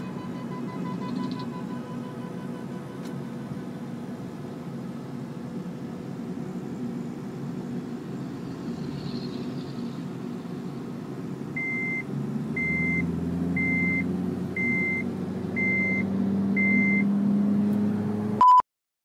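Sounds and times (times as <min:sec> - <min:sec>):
car engine and road noise: 0:00.0 - 0:18.6
short high beeps: 0:18.4 - 0:18.6.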